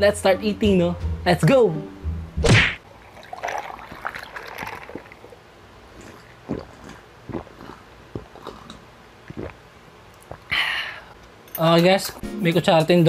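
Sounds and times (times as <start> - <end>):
ice clinking in glass mug: 3.0 - 5.2
loud gulps: 3.1 - 11.0.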